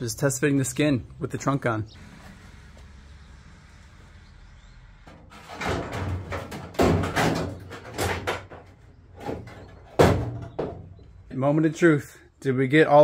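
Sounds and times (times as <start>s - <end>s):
bumps and scrapes: 1.3s - 11.5s
sheet metal panel rattling: 5.1s - 11.0s.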